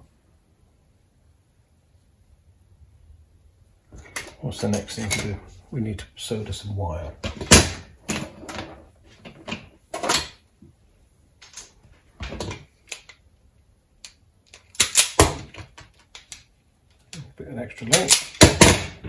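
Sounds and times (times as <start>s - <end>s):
tools handled on wooden worktop: 3.9s - 5.4s, 11.4s - 13.2s.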